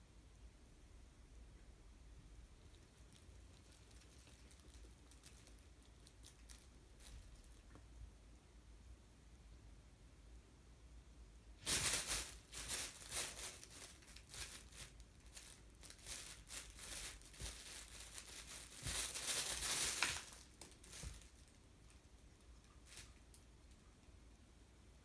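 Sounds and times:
fabric cat tunnel rustling: 2.6 - 7.8, 11.6 - 23.3.

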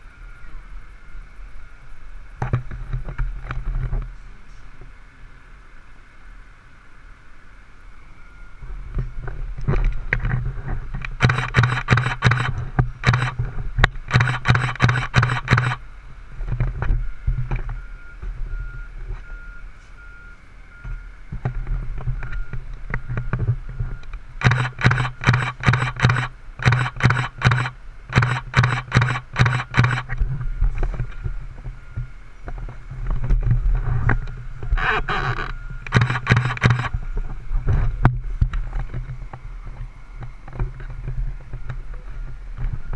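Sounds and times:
reversing alarm beeping: 11.2 - 13.4, 14.0 - 15.8, 17.7 - 21.2, 22.2 - 30.2, 34.1 - 37.0.

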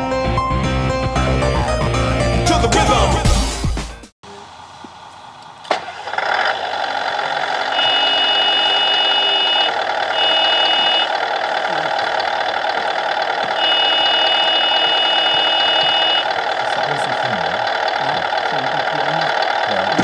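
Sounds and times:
simulated engine sound: 5.4 - 20.0
high warning tone: 7.6 - 20.0.

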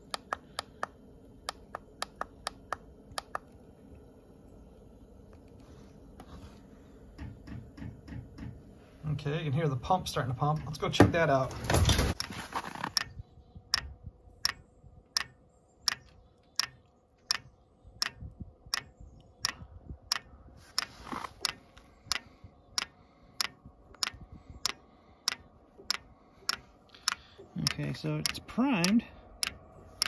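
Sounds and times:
fuel pump ticking: 12.1 - 30.0.

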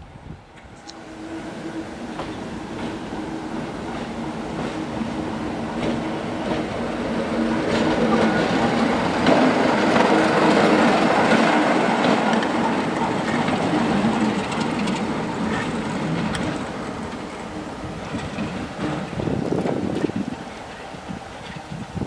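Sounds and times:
diesel locomotive engine passing: 0.0 - 22.0
wheels clicking over rail joints: 7.7 - 17.3.

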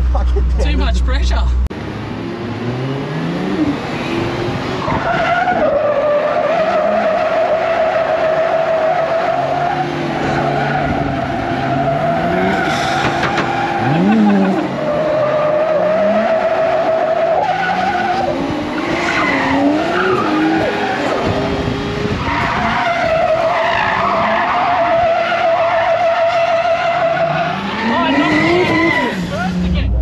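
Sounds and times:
engine revving: 1.7 - 25.1, 25.8 - 30.0
tyres squealing: 22.2 - 29.7.

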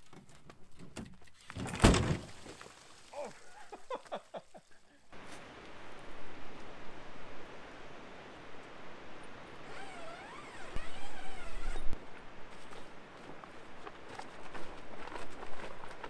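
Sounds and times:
zipper being pulled: 9.6 - 11.9.

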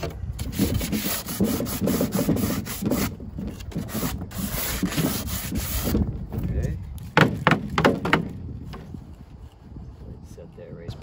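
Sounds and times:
sandpaper rubbing on plastic edge: 0.4 - 6.0.

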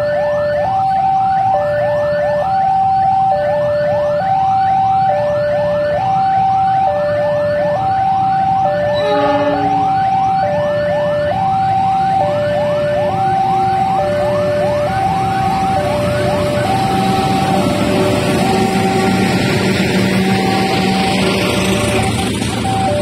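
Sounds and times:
electronic two-tone siren: 0.0 - 23.0
rising electronic chirps: 8.9 - 10.5.

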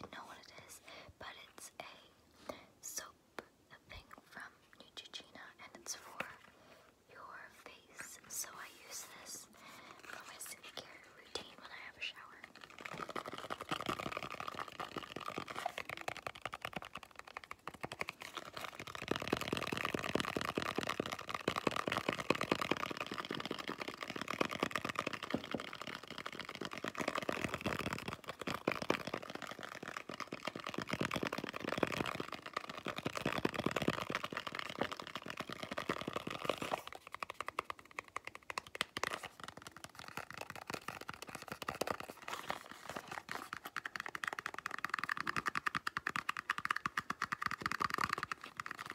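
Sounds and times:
fingertip tapping and scratching: 10.0 - 48.9
fingers tapping on cardboard box: 12.6 - 48.9.

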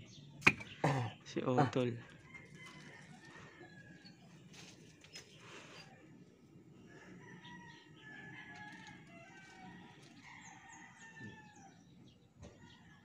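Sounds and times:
faint rooster crowing: 2.1 - 4.8, 6.8 - 13.0.

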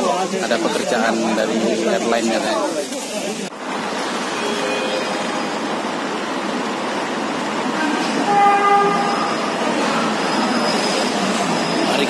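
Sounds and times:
metro train rushing: 3.6 - 12.0
short pitched horn tone: 8.2 - 9.6.

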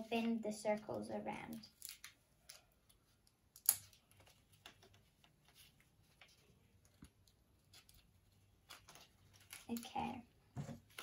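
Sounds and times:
paper and straws rustling: 3.8 - 11.0.

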